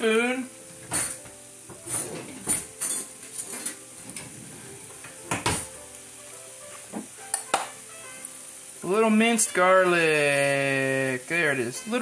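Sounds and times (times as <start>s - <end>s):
chicken sizzling in a skillet: 0.0s - 12.0s
kitchen utensils clinking: 0.8s - 4.4s.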